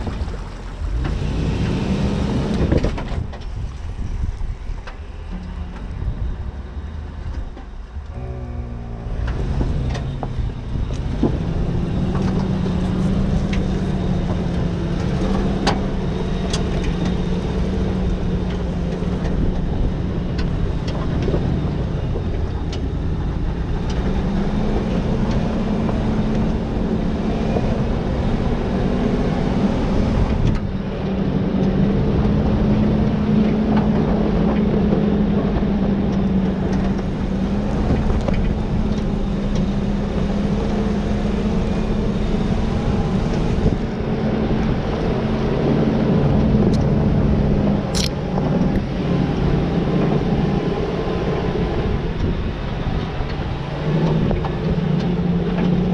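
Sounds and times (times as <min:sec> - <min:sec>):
truck engine pulling under load: 0:00.0 - 0:55.9
tyre and road noise: 0:00.0 - 0:55.9
sharp clicks: 0:47.9 - 0:48.8.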